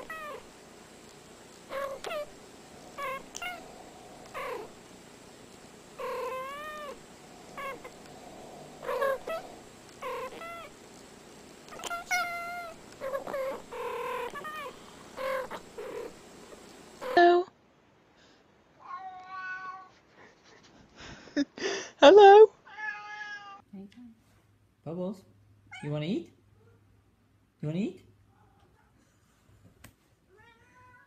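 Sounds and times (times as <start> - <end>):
cats chirping meows and trills: 0.0 - 0.5, 1.7 - 4.8, 6.0 - 10.8, 11.7 - 16.2, 18.8 - 20.0, 22.7 - 23.6, 30.3 - 31.0.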